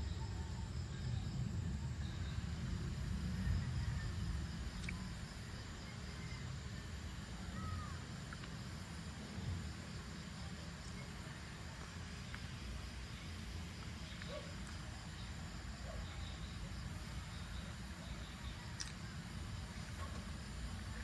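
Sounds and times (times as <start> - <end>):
steady low rumble: 0.0 - 7.4
faint hiss: 0.0 - 21.0
insects trilling: 0.0 - 21.0.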